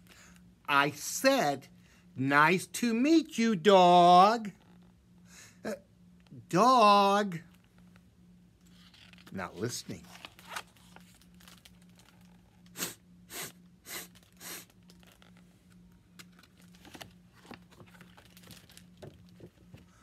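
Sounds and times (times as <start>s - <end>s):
book pages rustling: 8.6s - 12.6s, 14.1s - 20.0s
person sniffing through nose: 12.7s - 14.7s.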